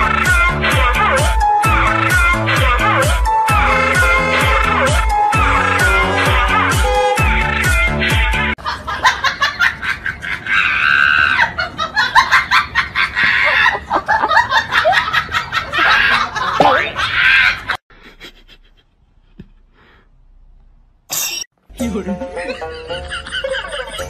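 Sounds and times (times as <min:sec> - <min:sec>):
people laughing hard: 0:04.0 - 0:19.0, 0:21.9 - 0:24.0.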